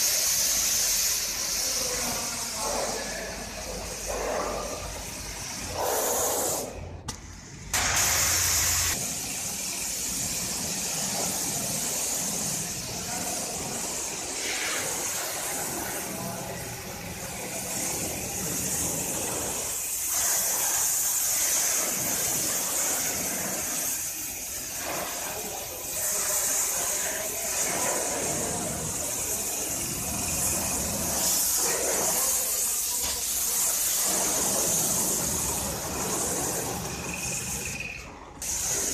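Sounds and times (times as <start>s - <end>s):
pressure washer jet hissing: 0.0s - 38.9s.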